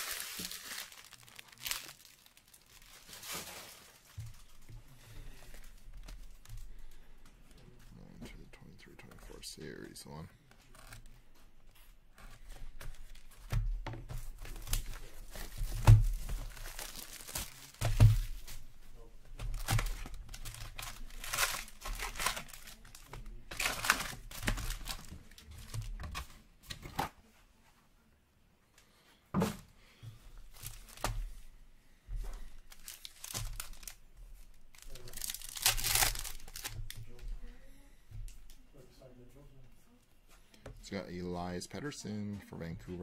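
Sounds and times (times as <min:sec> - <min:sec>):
plastic wrapping being torn open: 0:00.0 - 0:04.1, 0:14.6 - 0:18.6, 0:19.5 - 0:26.3, 0:32.7 - 0:37.0
foil packs crinkling: 0:00.0 - 0:04.6, 0:14.3 - 0:18.7, 0:19.4 - 0:26.3, 0:32.6 - 0:37.1.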